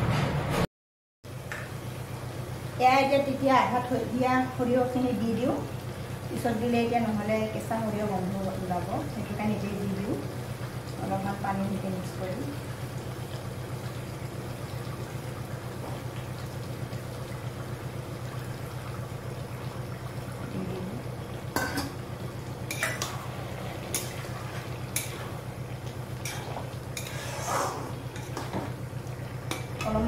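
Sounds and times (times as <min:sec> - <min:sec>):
steady low hum: 0:01.3 - 0:30.0
steel bowls and lid clinking: 0:21.6 - 0:22.0, 0:22.7 - 0:23.2
metal spatula scraping in wok: 0:26.2 - 0:28.5.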